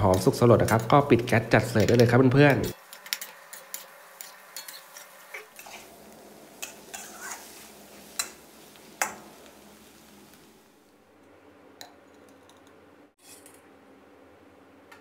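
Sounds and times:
metal spatula scraping a wok: 3.0s - 5.9s, 6.6s - 8.4s.

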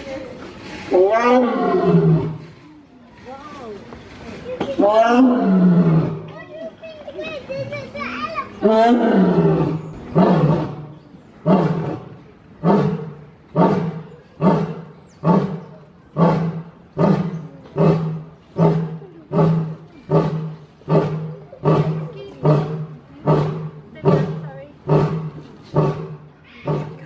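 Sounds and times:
lion roaring: 0.9s - 2.5s, 8.6s - 27.0s.

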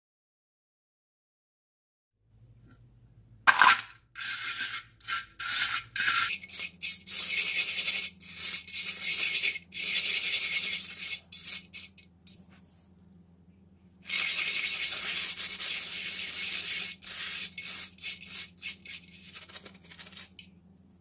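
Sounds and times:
eggshells scrubbed against clay pan: 3.5s - 12.0s, 14.0s - 20.4s.

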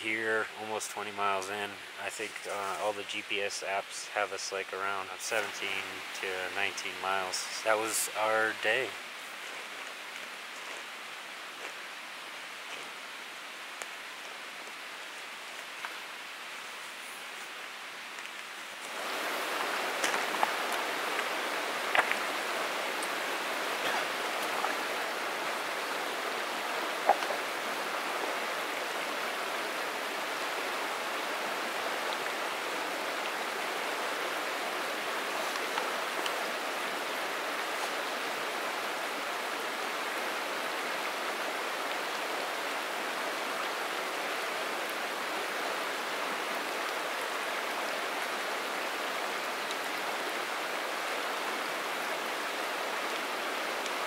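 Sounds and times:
flowing stream: 0.0s - 54.0s.

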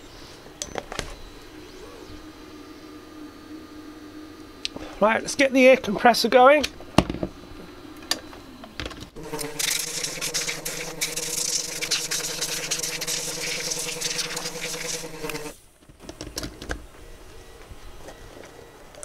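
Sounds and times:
air compressor humming: 0.0s - 16.1s
compressed air hissing from nozzle: 9.2s - 15.6s.

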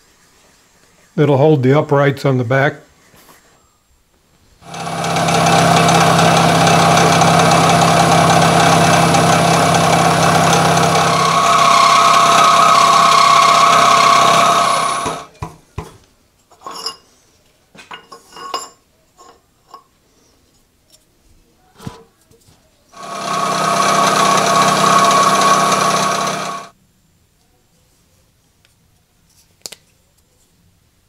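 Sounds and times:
milling machine cutting metal: 4.6s - 15.3s, 23.0s - 26.7s.

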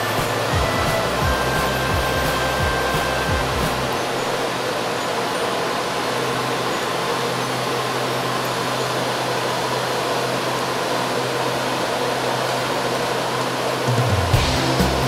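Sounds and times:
low hum: 0.0s - 5.6s
train fans whirring: 0.0s - 15.0s.

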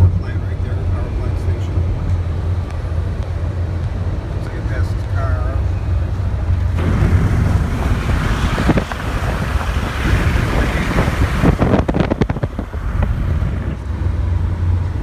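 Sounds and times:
low road rumble: 0.0s - 15.0s
wind buffeting phone microphone: 6.0s - 15.0s
sharp gusty thumps: 6.7s - 14.0s.

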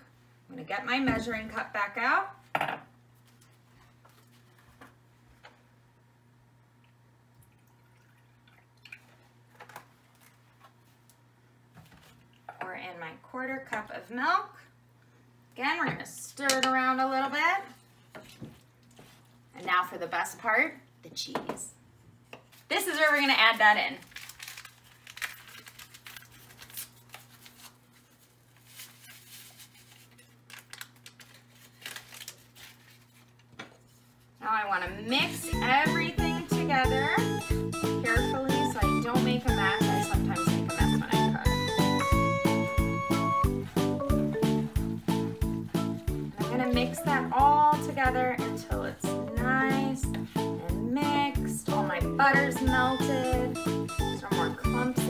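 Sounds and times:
milk pouring into a cup: 7.4s - 9.2s
paper packet rustling and crinkling: 22.5s - 34.3s.

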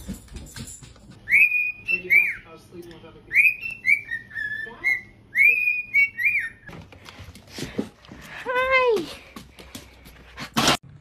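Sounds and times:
cockatiel whistling: 1.3s - 2.5s, 3.3s - 6.7s.

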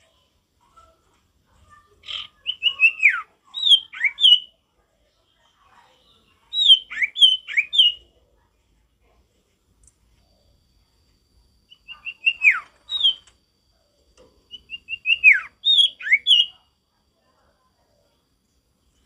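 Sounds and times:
bird whistling song: 2.0s - 4.6s, 6.1s - 8.0s, 11.7s - 13.3s, 14.5s - 16.6s.

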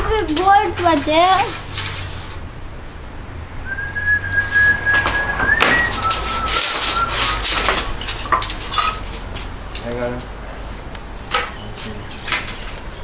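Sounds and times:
handling knocks and rustles: 0.0s - 2.4s, 5.0s - 10.4s
person whistling long notes: 3.6s - 7.7s.

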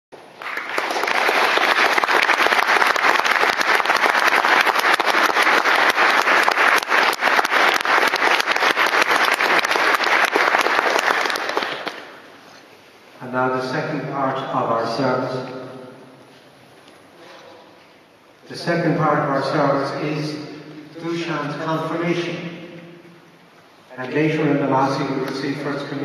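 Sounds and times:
crowd applauding: 0.1s - 12.4s.

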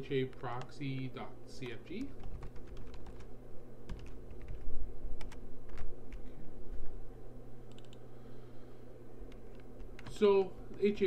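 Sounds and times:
steady low hum: 0.0s - 11.0s
keyboard typing: 0.3s - 3.3s, 3.9s - 6.3s, 7.7s - 8.0s, 9.2s - 11.0s.

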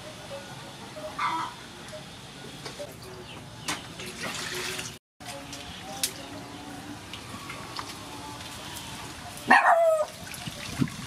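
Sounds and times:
water splashing in metal basin: 4.0s - 5.0s, 10.0s - 11.0s.

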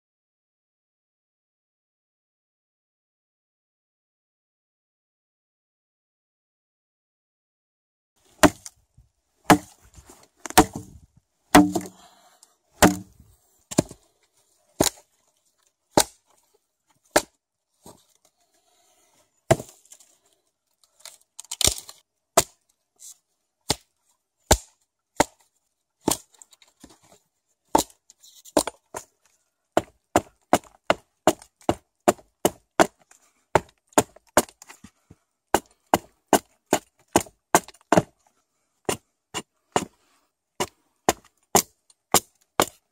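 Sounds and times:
hatchet chopping wood: 8.4s - 8.7s, 9.5s - 9.8s, 10.4s - 12.0s, 12.8s - 14.0s, 14.8s - 15.0s, 15.9s - 16.2s, 17.1s - 17.3s, 19.5s - 19.7s, 21.6s - 22.6s, 23.7s - 23.9s, 24.5s - 25.4s, 26.0s - 26.3s, 27.7s - 28.0s, 28.6s - 29.0s, 29.8s - 34.6s, 35.5s - 38.1s, 40.6s - 42.8s.

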